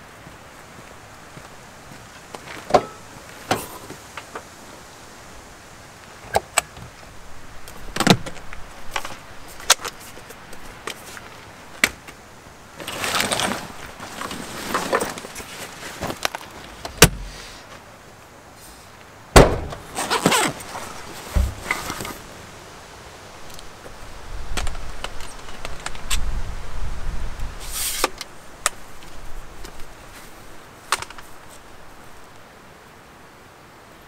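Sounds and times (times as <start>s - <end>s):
fabric backpack rustling: 12.8s - 16.6s, 19.5s - 22.2s
loud thuds: 19.4s - 20.1s, 21.3s - 21.8s.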